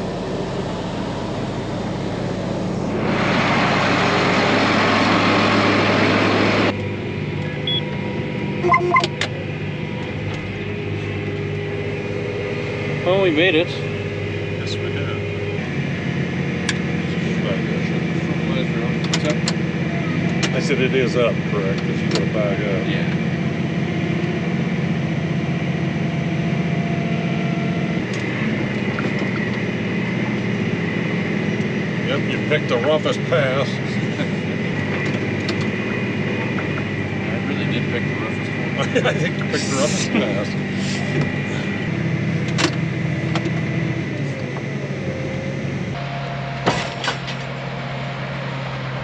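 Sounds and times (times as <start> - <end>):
vehicle engine running: 0.0 - 49.0
loud rushing noise: 2.2 - 6.8.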